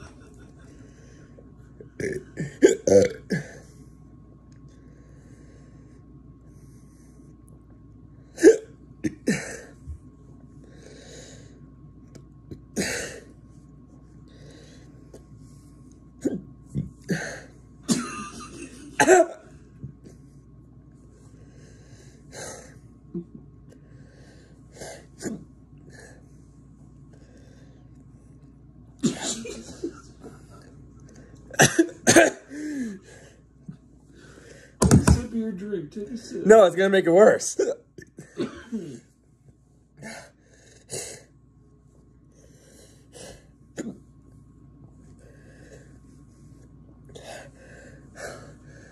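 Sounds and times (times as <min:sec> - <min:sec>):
person coughing: 0:02.0 - 0:03.6, 0:08.4 - 0:09.8, 0:17.1 - 0:19.5, 0:29.0 - 0:30.0, 0:31.5 - 0:33.0, 0:37.6 - 0:39.1
person breathing hard: 0:10.6 - 0:11.7, 0:32.5 - 0:33.5, 0:47.2 - 0:48.9.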